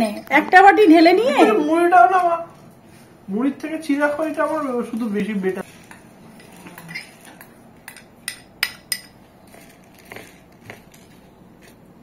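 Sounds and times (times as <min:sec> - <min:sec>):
metal spoon clinking on dishes: 0:06.4 - 0:09.2.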